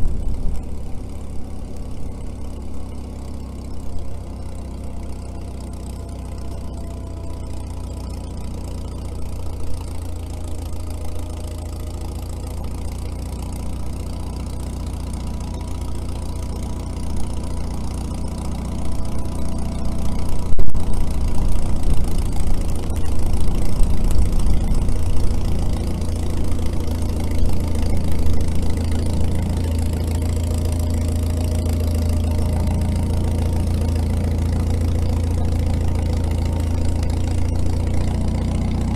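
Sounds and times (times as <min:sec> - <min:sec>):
crawler diesel engine running: 0:00.0 - 0:38.9.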